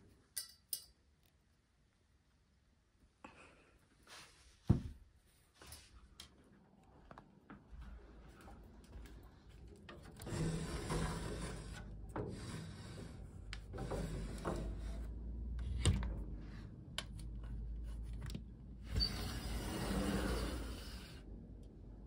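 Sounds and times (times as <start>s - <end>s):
sliding screens scraping along tracks: 9.8s - 15.7s, 18.8s - 21.3s.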